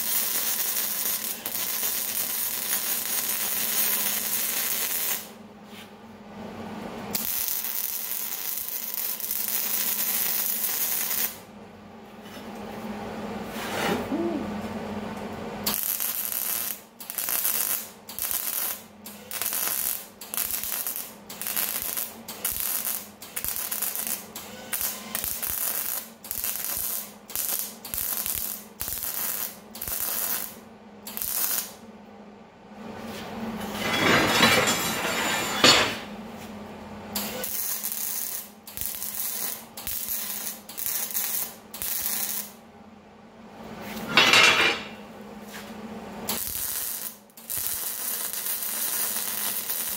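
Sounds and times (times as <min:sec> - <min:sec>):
welder arc crackling and hissing: 0:00.0 - 0:05.8, 0:07.0 - 0:11.5, 0:15.1 - 0:31.8, 0:37.2 - 0:42.6, 0:45.4 - 0:49.9.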